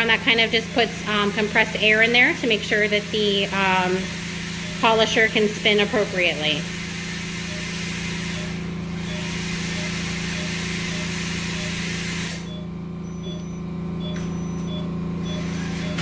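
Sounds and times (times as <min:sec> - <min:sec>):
air compressor humming: 0:00.0 - 0:16.0
faint regular beeps: 0:01.2 - 0:16.0
polishing handpiece hissing: 0:02.1 - 0:12.5.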